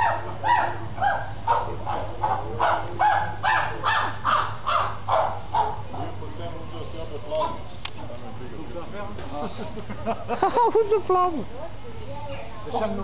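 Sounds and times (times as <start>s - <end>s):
monkey calling: 0.0s - 5.8s.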